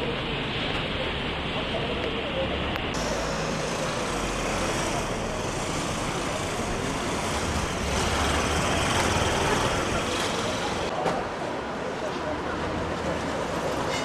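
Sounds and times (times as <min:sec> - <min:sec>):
vehicle engines running: 0:00.0 - 0:10.9.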